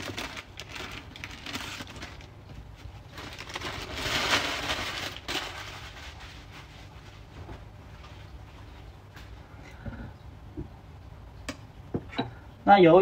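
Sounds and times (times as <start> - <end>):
damp paper towel rustling: 0.0 - 8.8.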